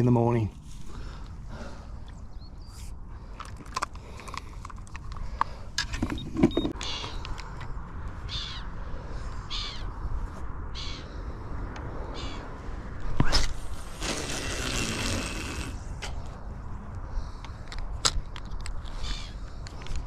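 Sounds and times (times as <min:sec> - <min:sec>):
wind rumble on microphone: 0:00.0 - 0:20.0
fishing tackle clicks and knocks: 0:03.3 - 0:07.7, 0:17.4 - 0:18.9
short rasping sounds: 0:13.3 - 0:15.8.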